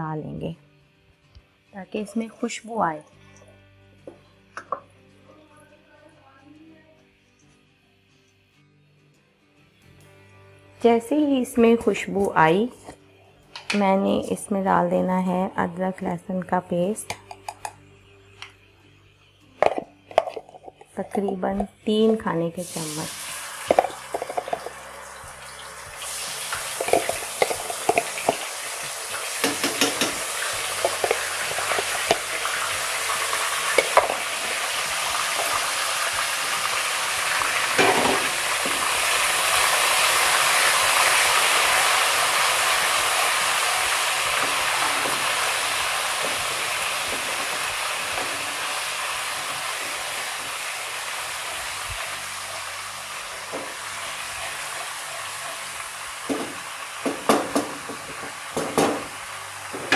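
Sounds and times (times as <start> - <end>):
paste sizzling in hot oil: 22.6 - 59.9.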